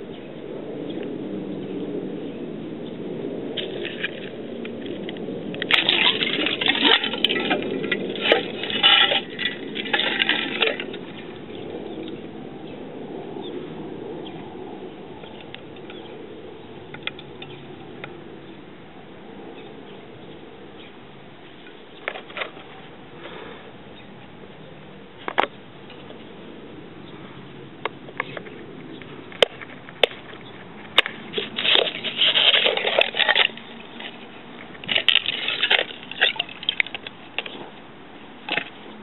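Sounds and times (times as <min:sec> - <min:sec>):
ice cracking and clinking: 0:05.6 - 0:11.4, 0:31.0 - 0:37.5
water splashing: 0:05.7 - 0:11.3, 0:34.8 - 0:37.0.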